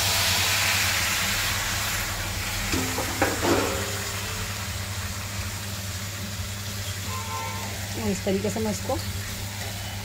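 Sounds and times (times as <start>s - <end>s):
vegetables sizzling in hot oil: 0.0s - 10.0s
metal plate clattering on pan: 2.7s - 4.0s.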